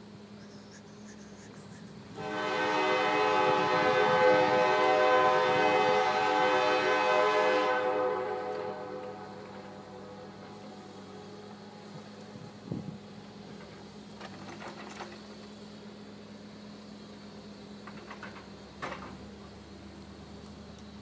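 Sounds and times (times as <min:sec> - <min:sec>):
locomotive air horn: 0:02.2 - 0:10.4.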